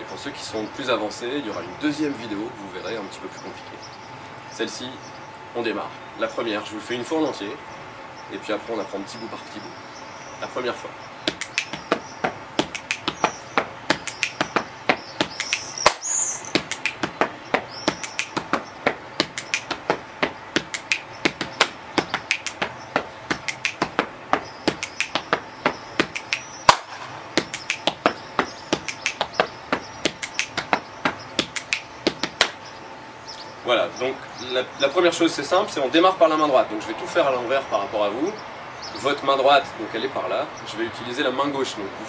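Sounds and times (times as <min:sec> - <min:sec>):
finger snaps: 0:11.3 - 0:12.0, 0:12.6 - 0:13.3, 0:13.9 - 0:16.0, 0:16.6 - 0:17.3, 0:17.9 - 0:18.6, 0:19.2 - 0:19.8, 0:20.6 - 0:22.7, 0:23.3 - 0:23.9, 0:24.7 - 0:25.4, 0:26.0 - 0:30.8, 0:31.4 - 0:32.6
hand slaps on body: 0:11.3 - 0:16.0, 0:16.6 - 0:17.3, 0:19.2 - 0:24.1, 0:24.7 - 0:25.4, 0:26.0 - 0:32.6.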